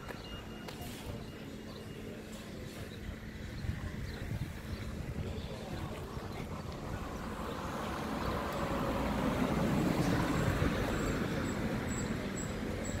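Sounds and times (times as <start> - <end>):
road vehicle rumbling past: 5.8 - 13.0.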